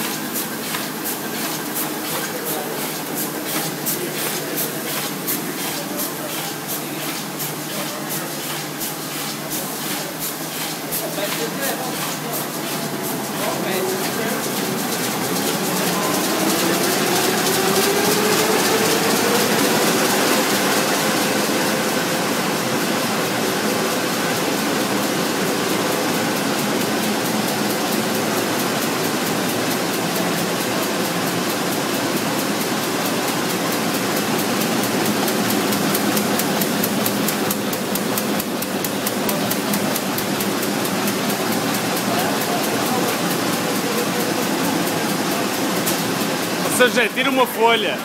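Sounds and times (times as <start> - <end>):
printing press clattering: 0.0 - 48.0.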